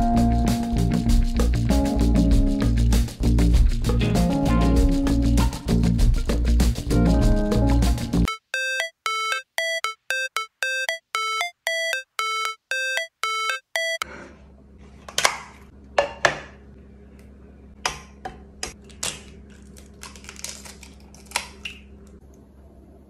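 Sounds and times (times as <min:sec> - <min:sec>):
electronic synth beeps: 0:08.3 - 0:14.0
egg cracking: 0:18.7 - 0:22.1.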